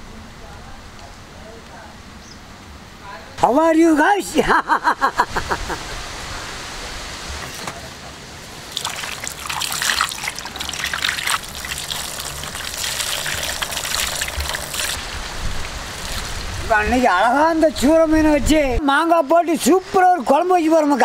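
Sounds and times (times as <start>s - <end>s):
water pouring and splashing: 8.5s - 17.2s.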